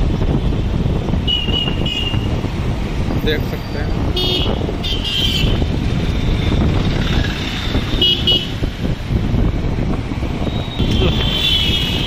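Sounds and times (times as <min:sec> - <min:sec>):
motorcycle engine rumble: 0:00.0 - 0:12.0
wind on microphone: 0:00.0 - 0:12.0
vehicle horn tooting: 0:10.8 - 0:12.0.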